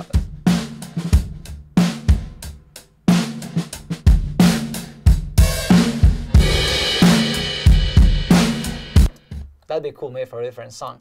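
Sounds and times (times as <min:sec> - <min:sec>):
distorted drum kit groove: 0:00.0 - 0:09.6
cymbal wash: 0:05.6 - 0:09.1.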